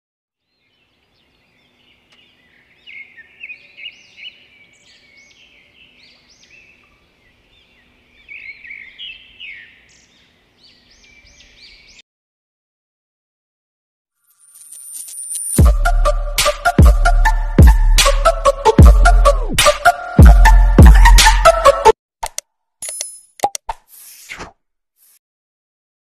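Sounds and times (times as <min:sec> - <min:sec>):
birds chirping and singing: 0:00.4 - 0:12.0.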